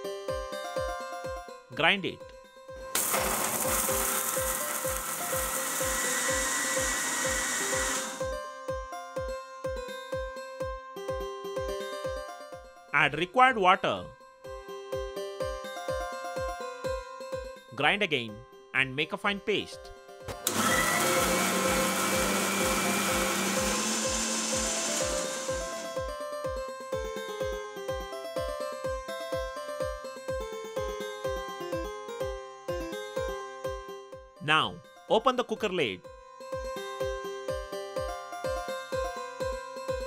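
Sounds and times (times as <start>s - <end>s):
mixer grinder whirring: 3.0s - 8.3s, 20.3s - 26.2s.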